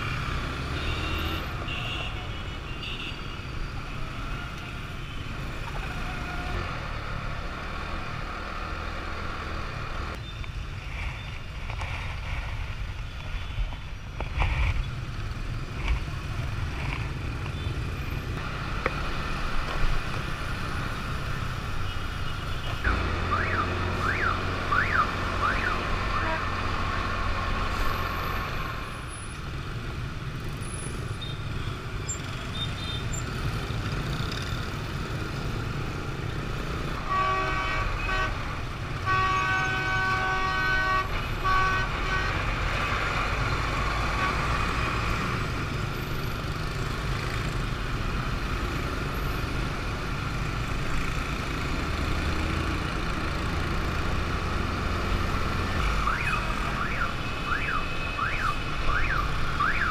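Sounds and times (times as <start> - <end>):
city traffic: 0.0 - 59.9
vehicle horns honking: 37.0 - 38.4, 39.0 - 42.5.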